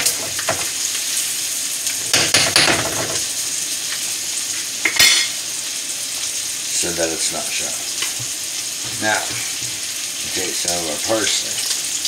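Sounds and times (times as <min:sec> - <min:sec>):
steak sizzling in a pan: 0:00.0 - 0:12.0
kitchenware clinking: 0:02.0 - 0:03.3, 0:04.8 - 0:05.4.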